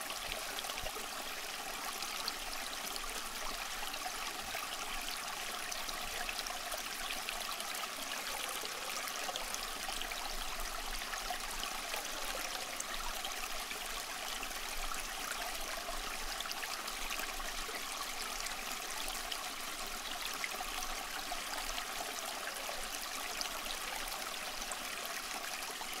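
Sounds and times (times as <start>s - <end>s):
rushing water: 0.0s - 26.0s.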